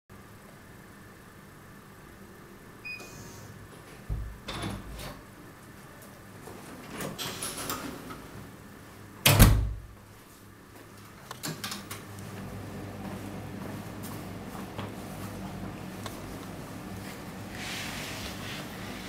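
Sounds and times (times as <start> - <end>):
door shutting thud: 4.1 - 5.2, 9.2 - 9.9.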